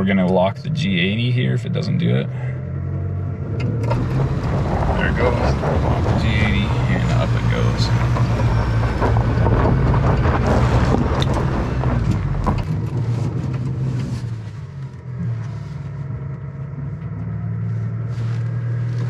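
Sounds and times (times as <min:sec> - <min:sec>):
truck engine pulling under load: 0:02.3 - 0:19.0
knocks and crunches: 0:04.0 - 0:14.4.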